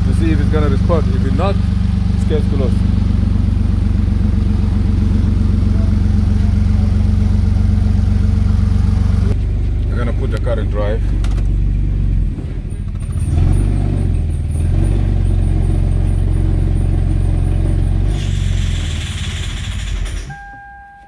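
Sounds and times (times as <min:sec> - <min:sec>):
car engine droning: 0:00.0 - 0:21.0
hiss: 0:18.2 - 0:20.1
short electronic beep: 0:20.3 - 0:21.0.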